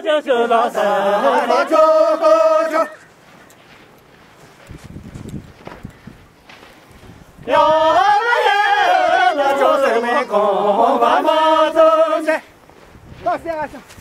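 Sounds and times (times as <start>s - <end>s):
people singing unaccompanied: 0.0s - 3.2s, 7.4s - 12.6s.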